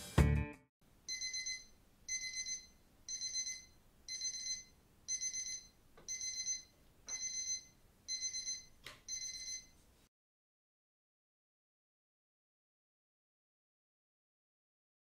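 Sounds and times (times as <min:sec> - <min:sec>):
alarm clock beeping: 0:01.1 - 0:09.7.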